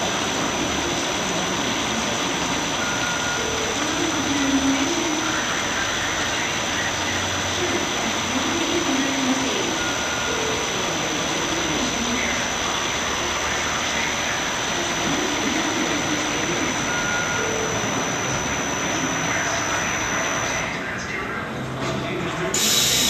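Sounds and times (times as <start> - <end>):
thin high whine: 1.9 - 21.1.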